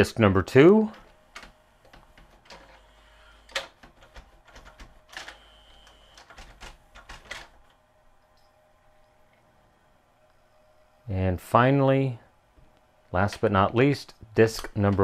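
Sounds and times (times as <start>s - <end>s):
mechanism clicks and clunks: 0.8s - 7.8s, 14.5s - 15.0s
cd changer motor running: 1.3s - 7.0s
thin steady whine: 5.0s - 6.3s, 7.6s - 14.5s.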